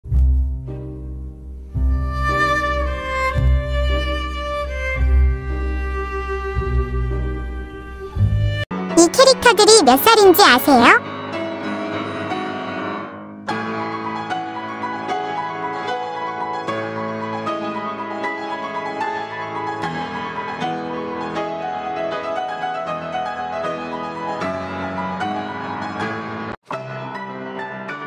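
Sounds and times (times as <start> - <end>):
background piano music: 13.6 - 28.0.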